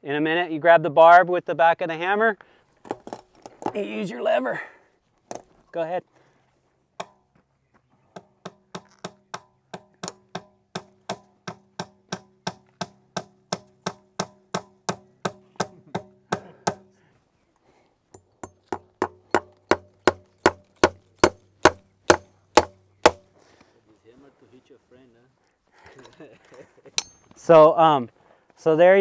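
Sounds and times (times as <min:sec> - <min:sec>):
hammer striking staples: 0:08.2 - 0:16.9, 0:18.4 - 0:23.3.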